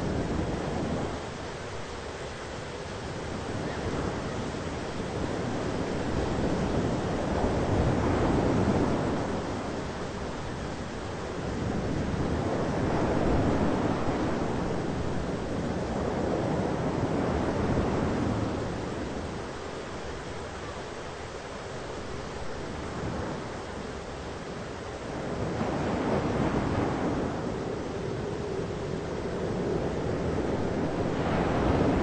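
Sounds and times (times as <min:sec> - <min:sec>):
thunderstorm rushing noise: 0:25.3 - 0:32.0.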